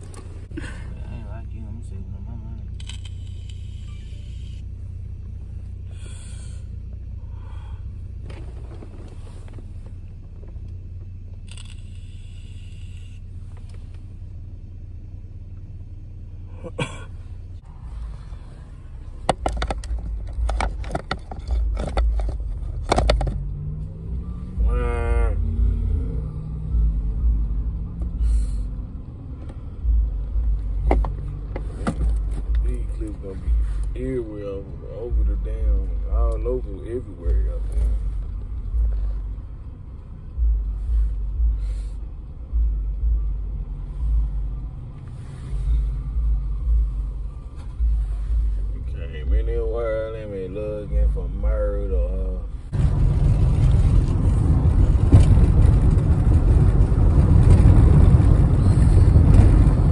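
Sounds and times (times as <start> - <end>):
car engine hum: 0.0 - 59.9
phone handling rumble and knocks: 19.2 - 23.4.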